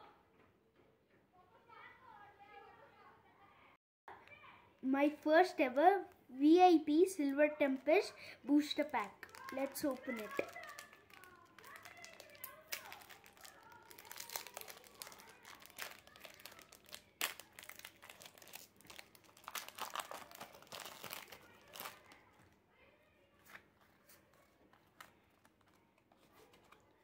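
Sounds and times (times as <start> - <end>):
cards rustling and clicking: 8.5 - 22.2, 23.4 - 27.0
foil wrapper tearing and crinkling: 8.8 - 22.3.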